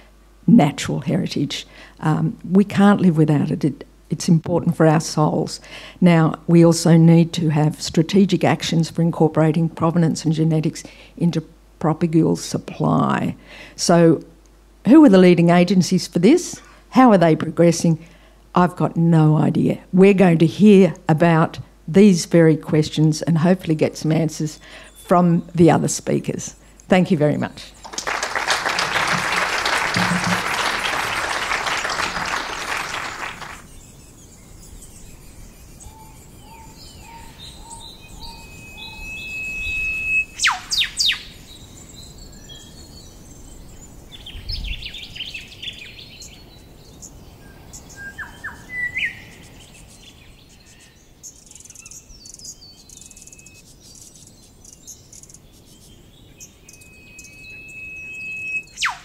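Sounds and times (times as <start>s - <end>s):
birds calling: 27.7s - 59.0s
audience applauding: 27.8s - 33.7s.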